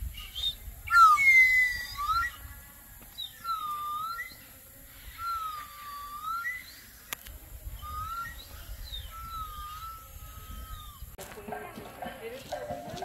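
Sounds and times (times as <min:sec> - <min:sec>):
whistled notes: 0:00.2 - 0:02.4, 0:03.4 - 0:04.5, 0:05.2 - 0:06.9, 0:07.8 - 0:11.0.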